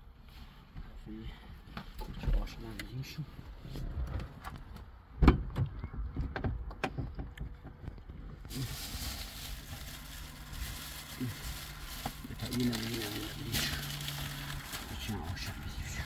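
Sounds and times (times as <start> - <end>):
plastic bags rustling: 8.5 - 16.0.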